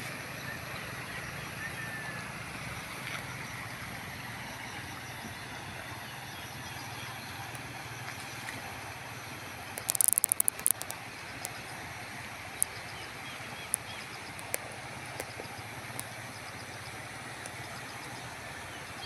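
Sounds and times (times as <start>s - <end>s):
sharp clicks: 9.8s - 11.6s, 13.6s - 16.2s.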